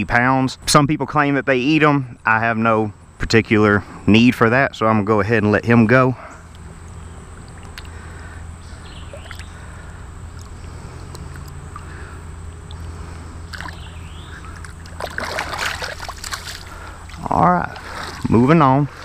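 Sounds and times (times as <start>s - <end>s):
low hum: 0.0s - 19.0s
water sloshing around a hand: 12.6s - 19.0s
fish splash: 13.5s - 13.8s, 14.4s - 18.3s.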